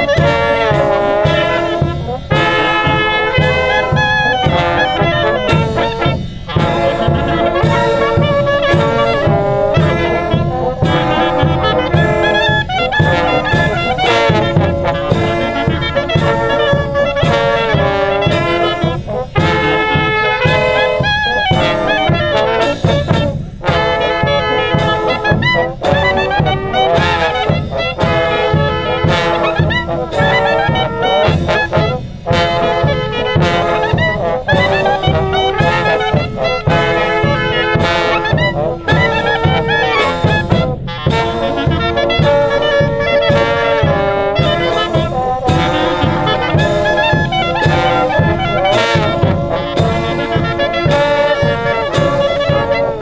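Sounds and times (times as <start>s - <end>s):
brass band playing a polka: 0.0s - 53.0s
clarinet melody: 0.0s - 53.0s.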